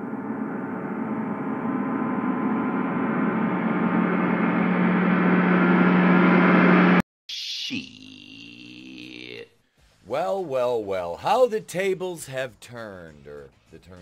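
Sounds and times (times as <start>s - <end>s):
reversed gong swell: 0.0s - 7.0s.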